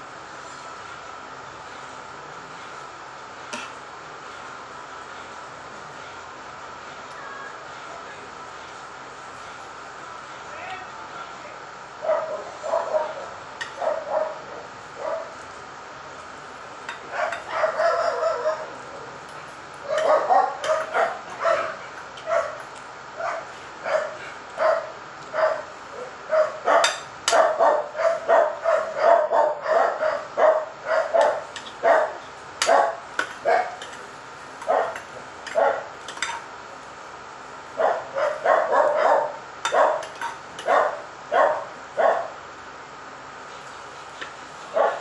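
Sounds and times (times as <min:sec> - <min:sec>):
dog barking: 0:12.0 - 0:15.4, 0:17.1 - 0:18.8, 0:19.8 - 0:22.6, 0:23.2 - 0:33.8, 0:34.6 - 0:35.9, 0:37.8 - 0:42.4, 0:44.7 - 0:45.0.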